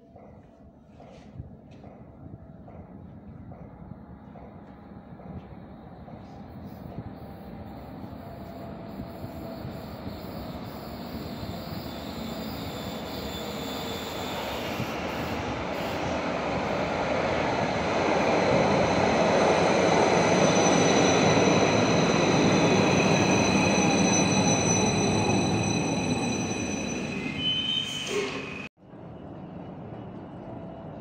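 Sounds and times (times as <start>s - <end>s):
light-rail train running in tunnel: 0.0s - 31.0s
high squealing tones: 20.1s - 28.7s.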